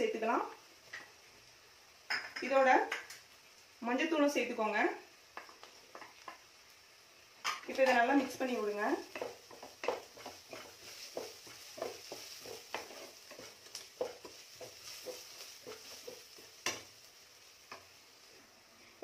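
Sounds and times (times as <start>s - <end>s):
oil sizzling: 0.0s - 19.0s
wooden spatula scraping pan: 7.8s - 17.0s.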